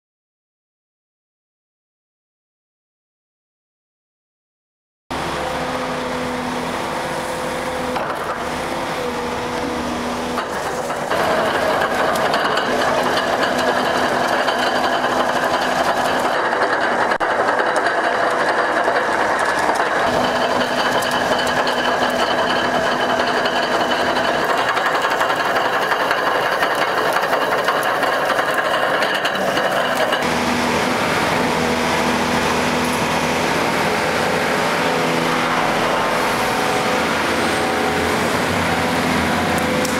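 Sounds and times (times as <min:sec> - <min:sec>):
excavator engine humming: 0:05.1 - 0:39.9
screening discs rattling: 0:10.4 - 0:30.2.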